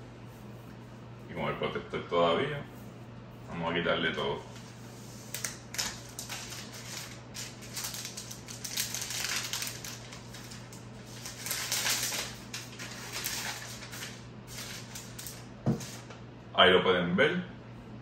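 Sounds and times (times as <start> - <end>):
plastic film crinkling: 4.5 - 16.2.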